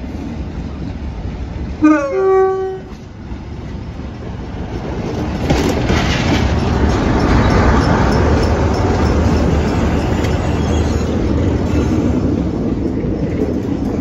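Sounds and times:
diesel locomotive passing: 0:00.0 - 0:14.0
locomotive horn: 0:01.8 - 0:03.0
faint rail clicks: 0:04.1 - 0:14.0.

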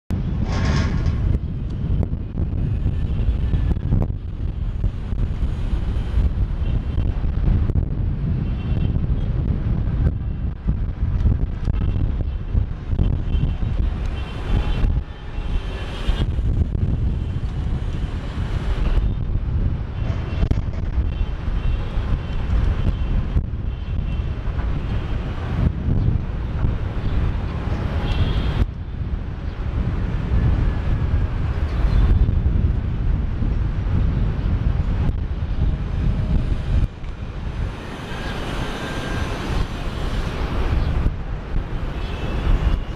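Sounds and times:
wind buffeting microphone: 0:00.1 - 0:42.9
jet engines rumbling: 0:35.1 - 0:42.8.

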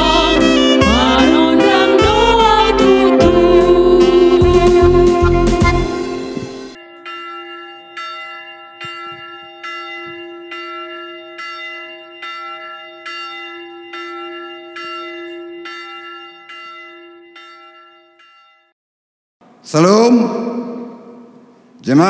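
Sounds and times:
church bell ringing: 0:05.9 - 0:18.8.

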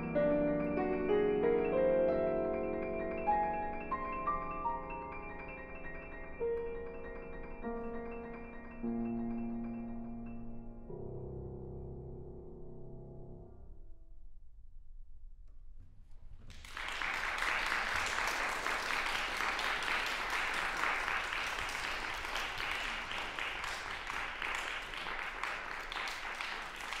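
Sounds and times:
piano notes: 0:00.0 - 0:14.0
audience applause: 0:16.5 - 0:27.0.

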